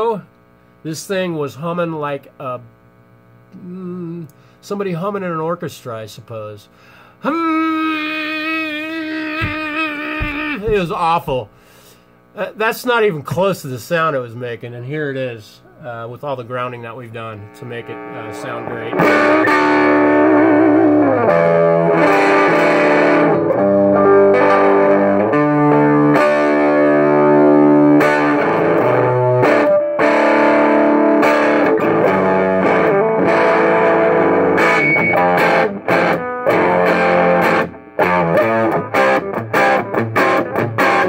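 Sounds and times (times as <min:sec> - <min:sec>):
electric guitar chords and notes: 0:06.8 - 0:12.3, 0:17.3 - 0:41.0.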